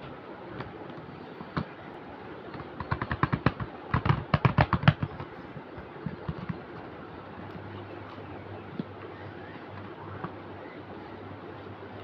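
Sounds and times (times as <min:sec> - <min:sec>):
rapid sharp clicks and taps: 0:02.5 - 0:06.9.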